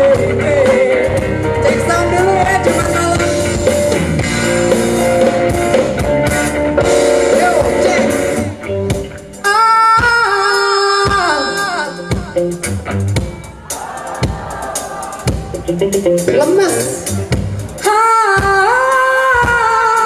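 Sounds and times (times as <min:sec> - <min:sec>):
live band playing pop song: 0:00.0 - 0:20.0
woman singing: 0:17.8 - 0:20.0.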